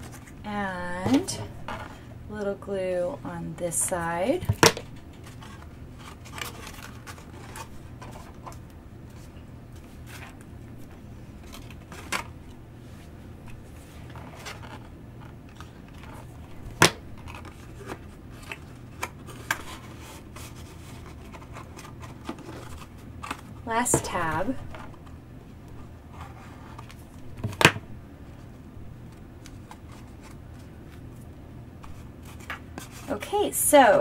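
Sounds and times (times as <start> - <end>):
paper rustling: 5.1 - 16.4, 17.2 - 23.6.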